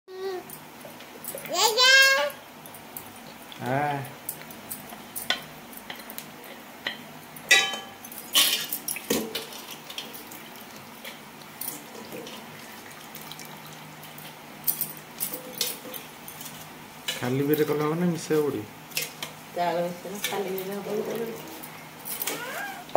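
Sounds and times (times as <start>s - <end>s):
metal pots knocking and clinking: 6.9s - 9.7s.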